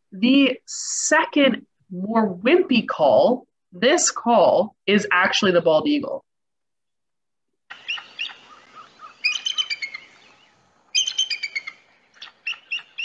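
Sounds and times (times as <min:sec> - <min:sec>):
eagle high-pitched chittering: 0:07.7 - 0:13.0.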